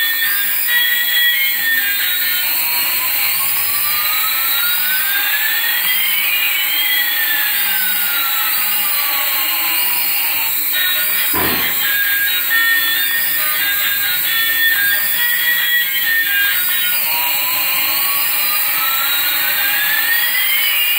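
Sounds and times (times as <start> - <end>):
toy helicopter rotors whirring: 0.0 - 20.9
whining tones: 1.8 - 5.8, 10.2 - 20.0.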